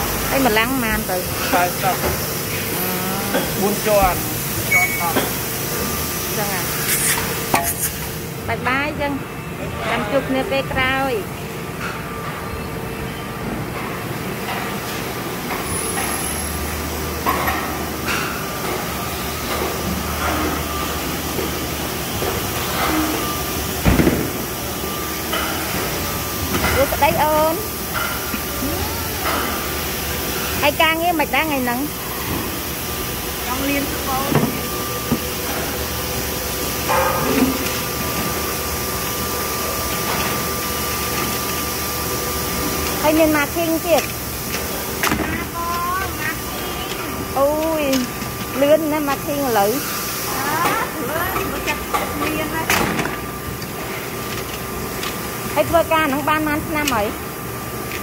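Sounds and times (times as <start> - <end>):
thin high tone: 4.6 - 5.3
factory machinery din: 13.4 - 58.0.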